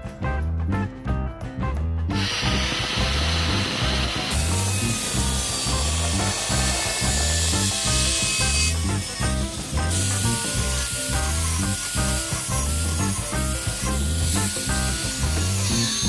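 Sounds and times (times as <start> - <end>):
angle grinder cutting steel: 2.1 - 16.0.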